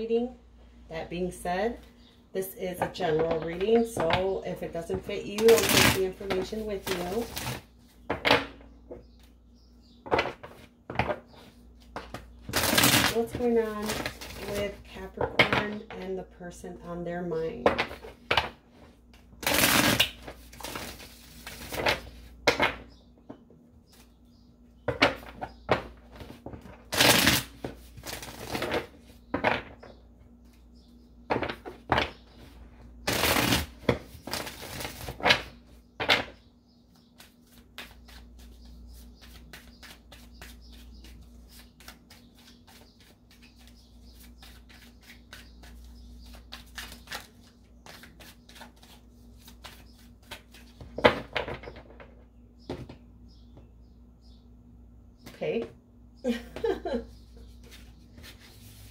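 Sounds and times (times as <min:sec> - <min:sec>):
cards being shuffled: 0:05.4 - 0:07.6, 0:11.8 - 0:14.6, 0:37.2 - 0:51.0.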